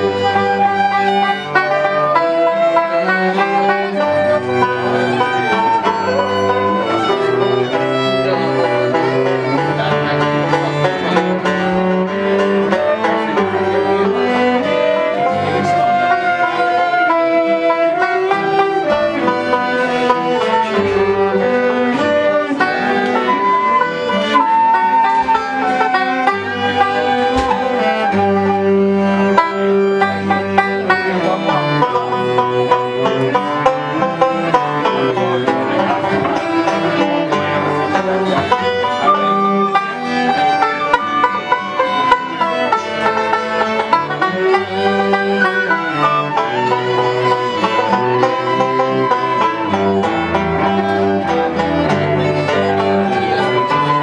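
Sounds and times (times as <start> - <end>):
bowed cello: 0.0 - 54.0
string instruments playing: 0.0 - 54.0.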